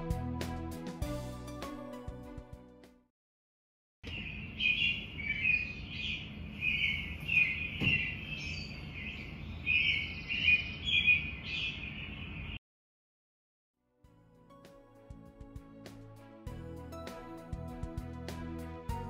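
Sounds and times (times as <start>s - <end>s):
small birds chirping: 4.0s - 12.6s.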